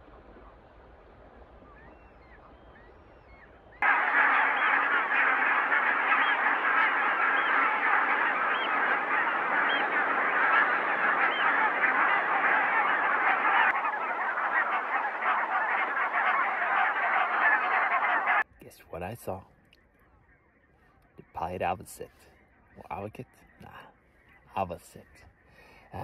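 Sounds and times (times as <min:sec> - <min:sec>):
geese honking: 0:03.8 - 0:18.5.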